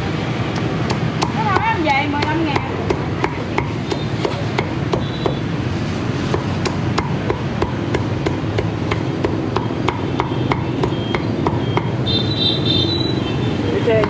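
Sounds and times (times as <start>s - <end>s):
cleaver chopping roast pork: 0.5s - 5.4s, 6.3s - 12.0s.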